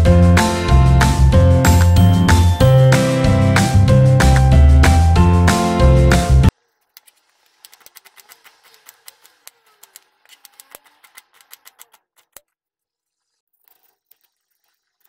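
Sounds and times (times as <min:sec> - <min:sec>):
intro music: 0:00.0 - 0:06.5.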